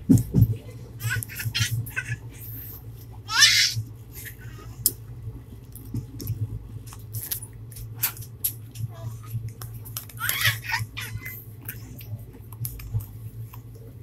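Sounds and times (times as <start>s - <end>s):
train hum: 0.0s - 14.0s
child squealing: 3.3s - 3.8s.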